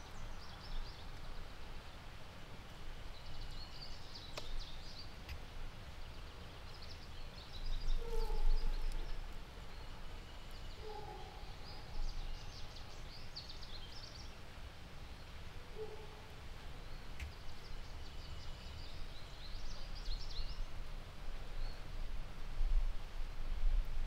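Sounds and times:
small birds chirping: 0:03.1 - 0:05.3
lower-pitched bird calls: 0:07.7 - 0:09.2, 0:09.8 - 0:12.6.

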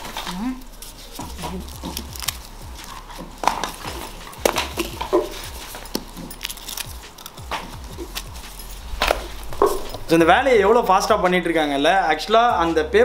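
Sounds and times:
paper crinkling: 0:00.0 - 0:10.2.

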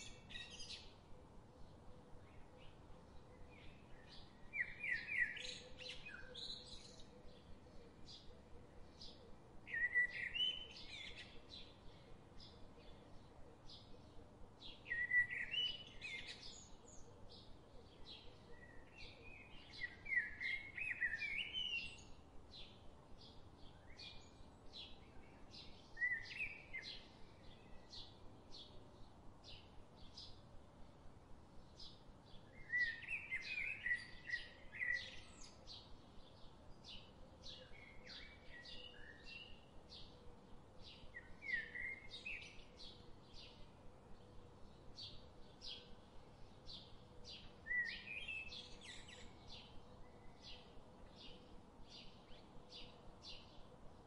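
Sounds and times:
birds chirping and singing: 0:46.7 - 0:53.6.

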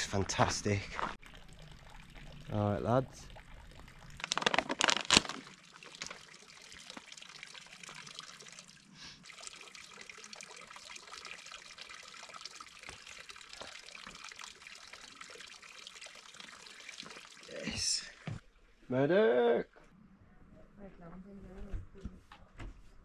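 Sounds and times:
water trickling into wooden trough: 0:01.0 - 0:18.6.

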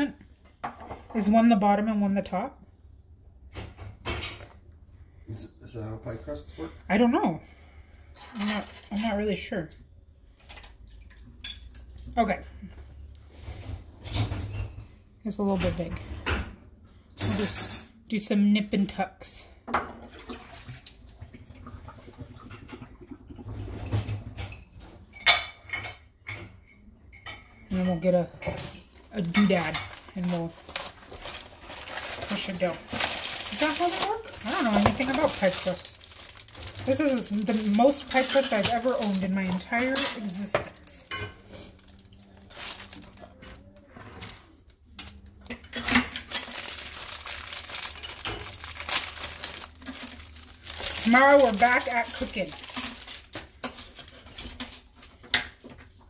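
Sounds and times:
plastic sleeve crinkling: 0:29.1 - 0:45.2, 0:45.8 - 0:55.1.

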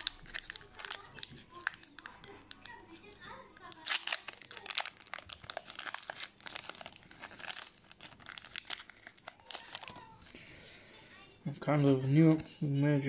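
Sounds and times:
plastic wrapper crinkling: 0:00.0 - 0:10.2.

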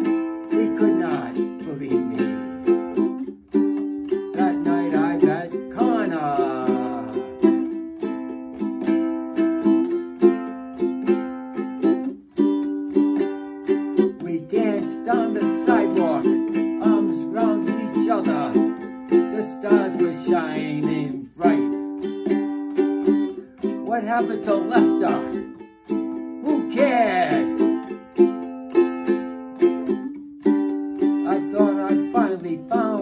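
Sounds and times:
man singing: 0:00.0 - 0:03.1, 0:04.0 - 0:07.7, 0:14.0 - 0:22.0, 0:23.6 - 0:25.6, 0:26.4 - 0:28.0, 0:31.1 - 0:33.0
ukulele strumming: 0:00.0 - 0:33.0.

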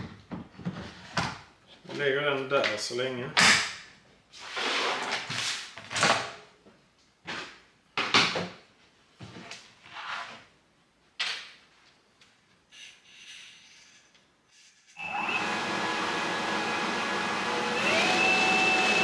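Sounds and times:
objects scraping and rustling: 0:04.3 - 0:06.0, 0:09.2 - 0:10.5, 0:12.7 - 0:15.0.

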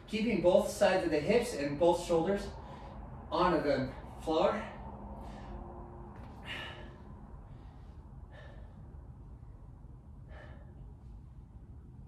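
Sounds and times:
low background rumble: 0:00.0 - 0:12.0
man exhaling: 0:04.0 - 0:09.2, 0:10.2 - 0:11.0.

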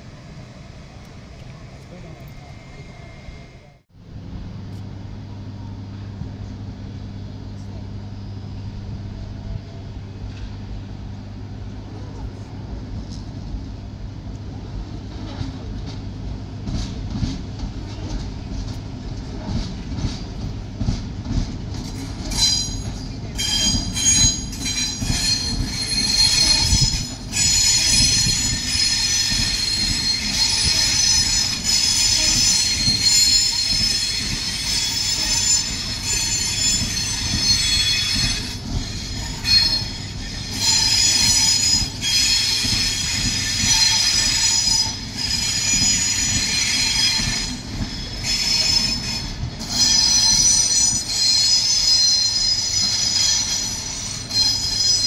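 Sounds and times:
train rolling with low rumble: 0:00.0 - 0:55.0
train wheels squealing: 0:21.8 - 0:55.0.

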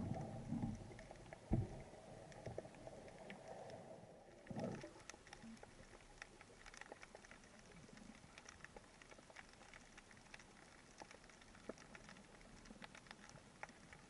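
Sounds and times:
faint underwater crackling clicks: 0:00.0 - 0:14.0.

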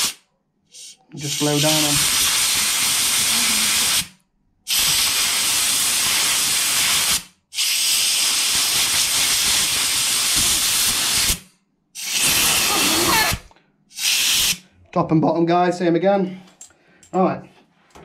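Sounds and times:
compressed air blow gun hissing: 0:00.8 - 0:04.1, 0:04.7 - 0:14.6.

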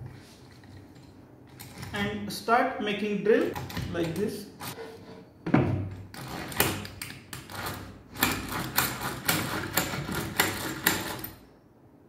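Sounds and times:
hand drill scraping through wood: 0:06.2 - 0:06.8.

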